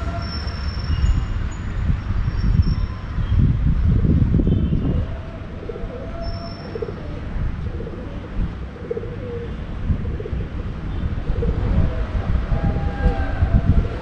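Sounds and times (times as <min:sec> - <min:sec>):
city traffic rumble: 0:00.0 - 0:14.0
wind: 0:00.0 - 0:14.0
pigeon cooing: 0:05.0 - 0:10.6.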